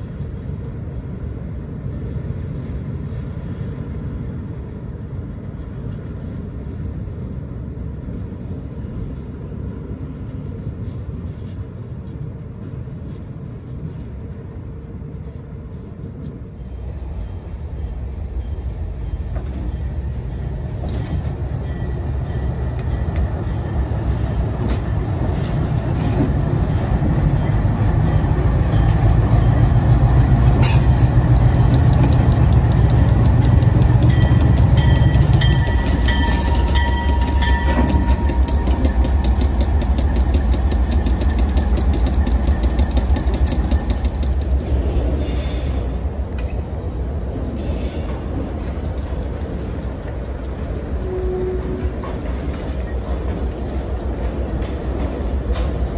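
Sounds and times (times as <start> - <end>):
diesel locomotive engine drone: 0.0 - 55.9
sharp clicks and clatter: 30.6 - 44.8.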